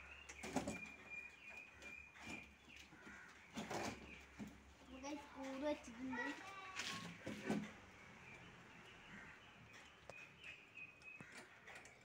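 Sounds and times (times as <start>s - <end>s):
wooden crate knocks and scrapes: 2.2s - 4.6s, 6.8s - 7.8s.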